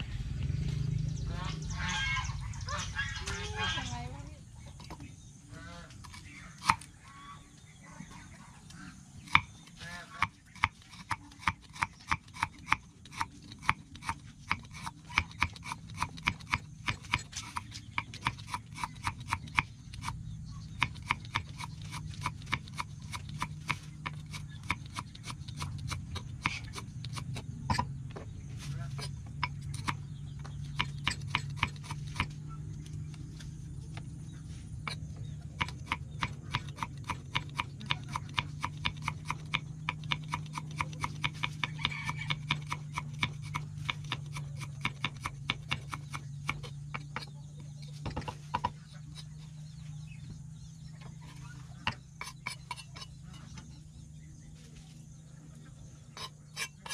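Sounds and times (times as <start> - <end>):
knife chopping on wooden board: 10.2 - 27.9, 28.9 - 32.4, 34.9 - 49.4.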